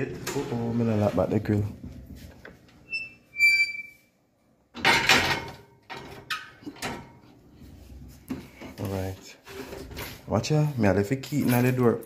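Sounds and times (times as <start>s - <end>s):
hinge squeaking: 2.8s - 4.1s
metal gate clanking shut: 4.8s - 7.1s.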